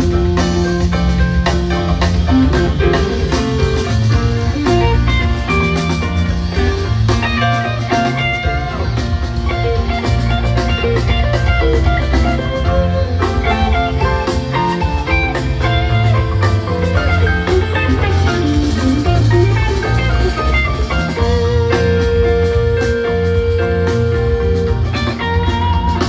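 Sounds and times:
electric guitar notes: 0.0s - 26.0s
rock band playing: 0.0s - 26.0s.

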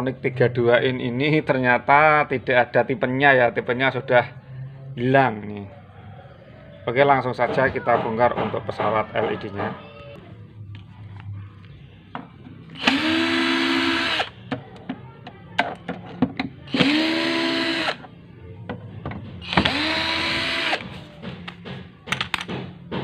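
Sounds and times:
electric screwdriver whining: 12.8s - 14.4s, 16.7s - 18.0s, 19.4s - 20.9s.

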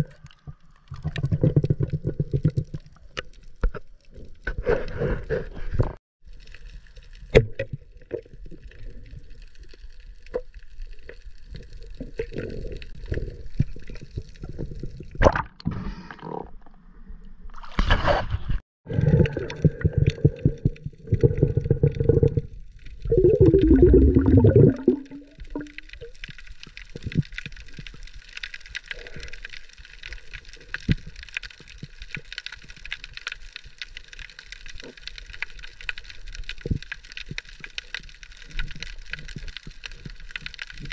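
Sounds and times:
faint underwater clicks and crackle: 0.0s - 18.1s, 18.9s - 40.9s
water gurgling and sloshing: 0.0s - 28.6s.

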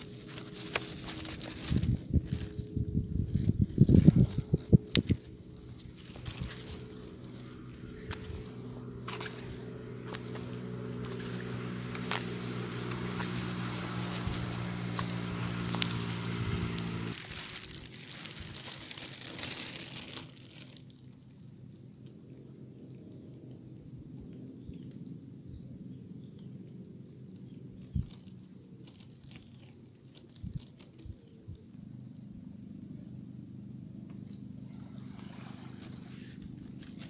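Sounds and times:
low motor drone: 0.0s - 19.2s, 31.5s - 37.0s
water-side ambience: 0.0s - 37.0s
footsteps crunching on rock: 5.8s - 17.7s.

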